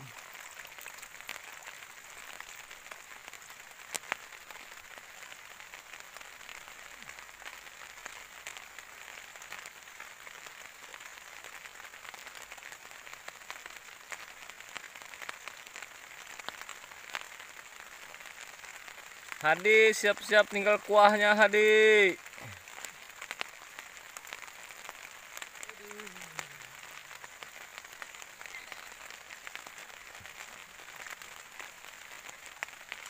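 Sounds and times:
light rain hiss: 0.0 - 33.0
water drips ticking: 0.0 - 33.0.

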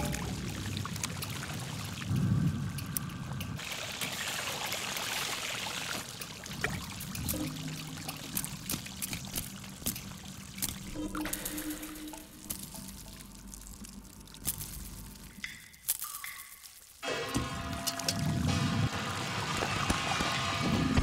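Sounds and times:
hot oil hissing and dripping: 0.3 - 17.1.

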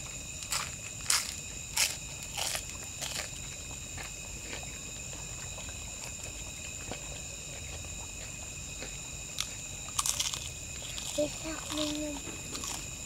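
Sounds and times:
night insects chirring: 0.0 - 13.0
crunches of fried food bitten: 0.4 - 4.8, 9.4 - 13.0.

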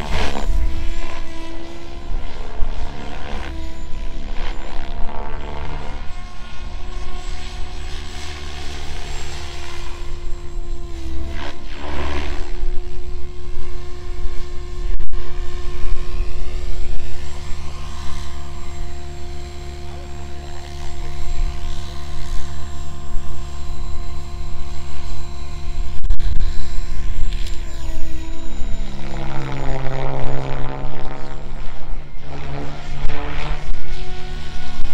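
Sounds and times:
helicopter motor high whine: 0.0 - 34.9
rotor blades whooshing: 0.0 - 34.9.

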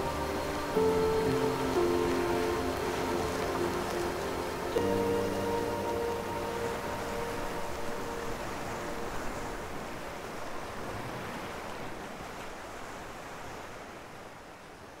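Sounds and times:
ocean surf rushing: 0.0 - 14.3.

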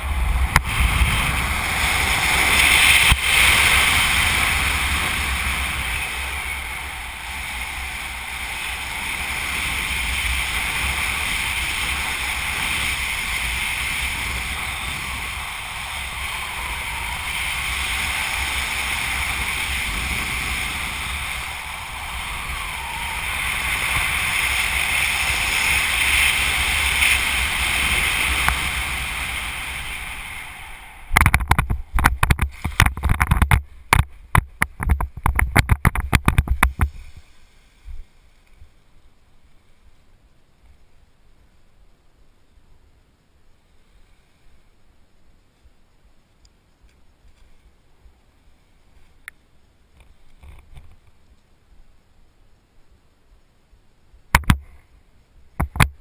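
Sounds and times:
wind buffeting and knocks: 0.0 - 37.2, 54.3 - 54.7, 55.6 - 56.0
wind rushing over microphone: 0.0 - 38.8.

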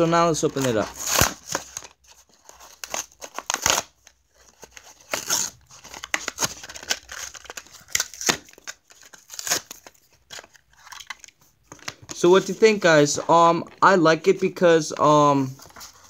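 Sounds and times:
cardboard ripping: 0.5 - 10.9
plastic blister crinkling: 2.8 - 13.8.

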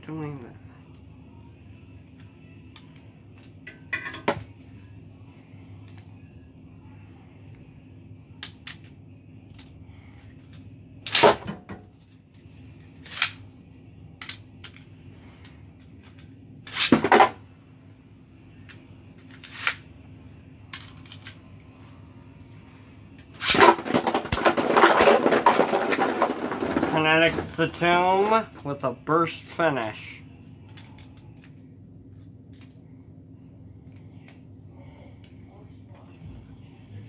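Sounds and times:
pieces rattling across plastic: 23.5 - 27.8.

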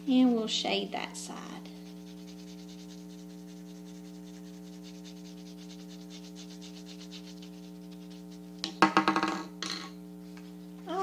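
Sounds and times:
pencil scratching on paper: 0.0 - 8.6
steady electrical hum: 0.0 - 11.0.

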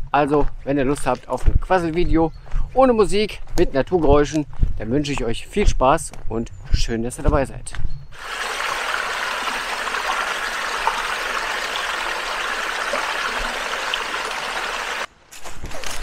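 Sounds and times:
brook running over stones: 8.2 - 15.1.

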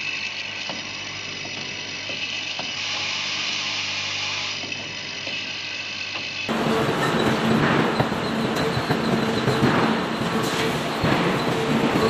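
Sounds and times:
machine humming and hissing: 0.0 - 12.0.

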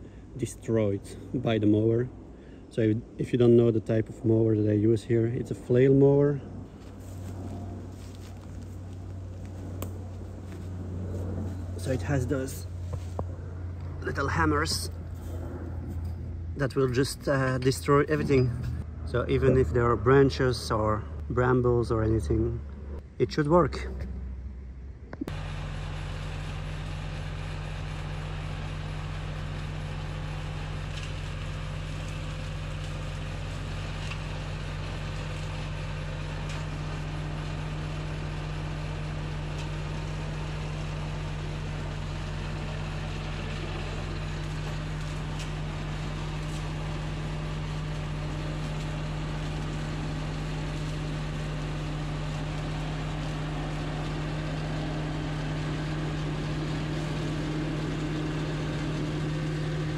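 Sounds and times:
tractor engine running: 6.6 - 59.9
flail mower cutting brush: 25.3 - 59.9.

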